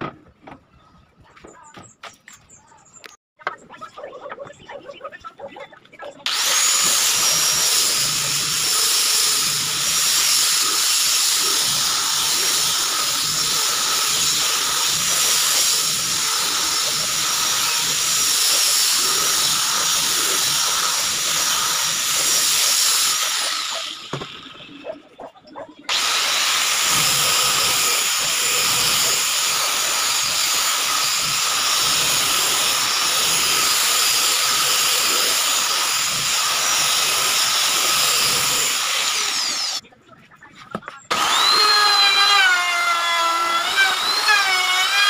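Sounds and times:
sanding pad hissing on wood: 6.3 - 24.1, 25.9 - 39.8
electric sander whining: 6.3 - 24.7, 25.9 - 39.8, 41.1 - 45.0.

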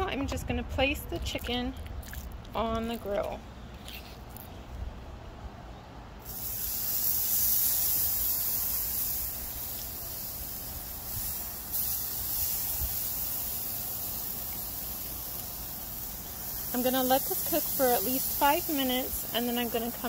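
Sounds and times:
meat sizzling on a grill: 6.2 - 20.0.

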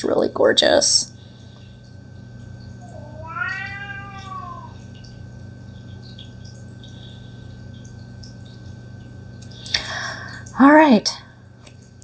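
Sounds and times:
cat meowing: 2.8 - 4.8.

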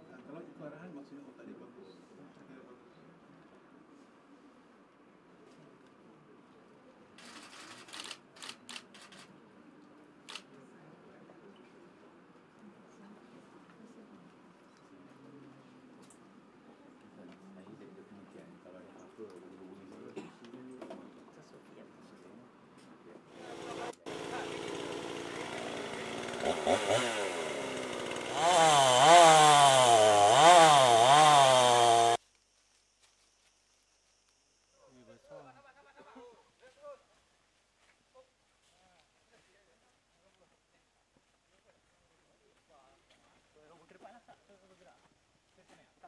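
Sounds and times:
camera shutter clicks: 7.2 - 9.3
chainsaw cutting tree trunk: 23.3 - 32.2.

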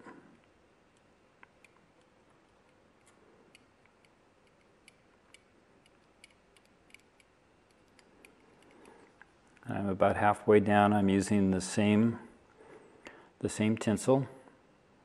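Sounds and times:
thread ticking on a fly hook: 3.5 - 9.0.

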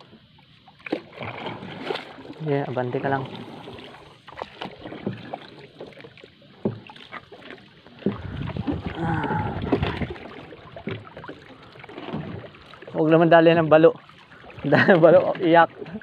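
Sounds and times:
water sloshing around boat: 0.0 - 16.0
knocks and clicks against hull: 3.3 - 12.8.

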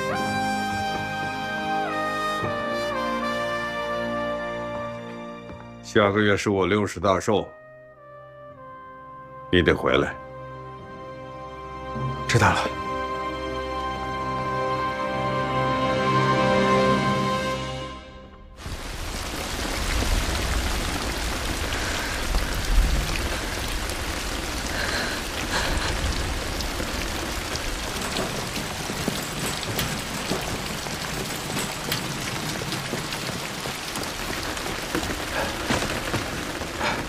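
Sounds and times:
heavy rain on pavement: 0.0 - 5.8, 18.6 - 37.0.

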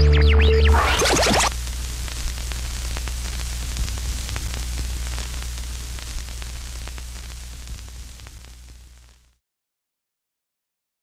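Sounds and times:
steady low hum: 0.0 - 9.2
static hiss with crackles: 0.6 - 9.4.

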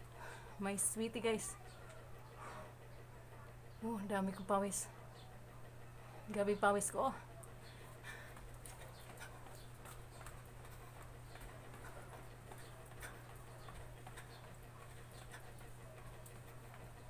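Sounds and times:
footsteps jogging on hard floor: 8.0 - 17.0.

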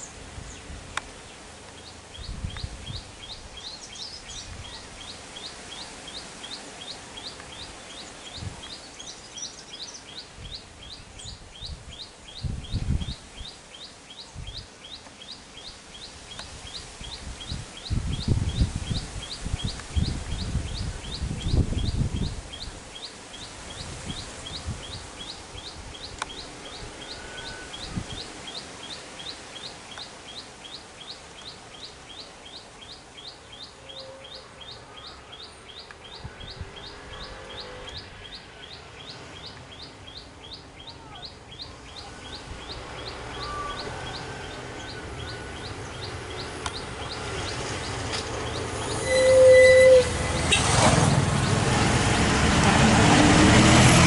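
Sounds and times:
bird chirping: 1.8 - 51.6
birds whistling: 2.2 - 51.6
low vehicle engine rumble: 34.4 - 54.0.

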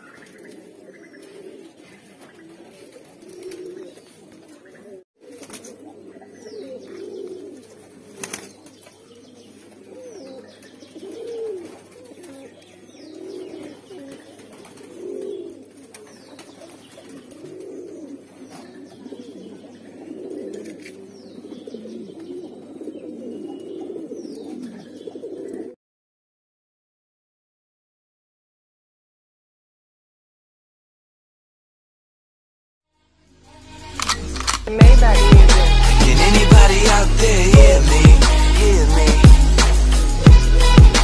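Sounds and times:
pigeons cooing: 0.0 - 25.8.

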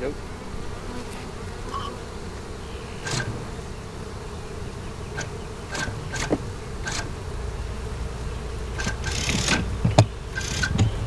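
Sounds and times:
honeybees buzzing: 0.0 - 11.0
sharp clicks: 5.2 - 7.1, 8.8 - 11.0.

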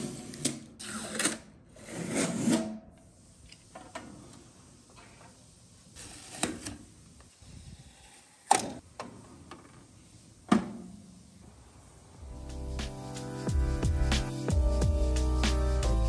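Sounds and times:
music: 12.2 - 16.0.

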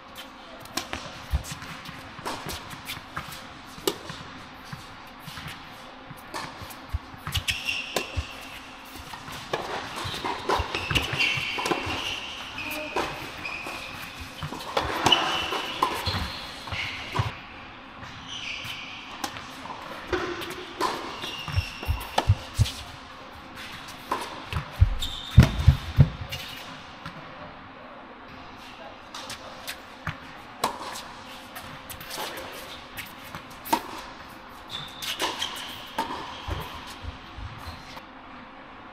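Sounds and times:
sneakers squeaking: 0.2 - 26.7, 29.2 - 38.0
rackets striking tennis ball: 0.6 - 17.4, 19.1 - 22.9, 23.6 - 27.2, 34.8 - 37.2.

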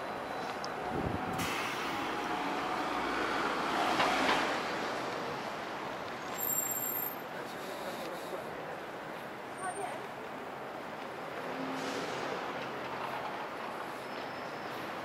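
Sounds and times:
bus driving by: 0.0 - 6.8, 11.1 - 15.0
city street traffic: 0.0 - 15.0
loud hiss: 1.3 - 2.3.

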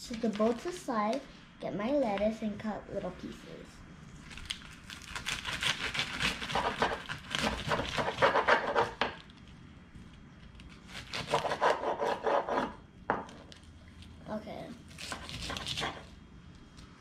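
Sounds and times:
knife crunching through lettuce: 4.3 - 8.0
knife scraping cutting board: 5.6 - 9.1, 10.9 - 12.8, 15.0 - 16.1.

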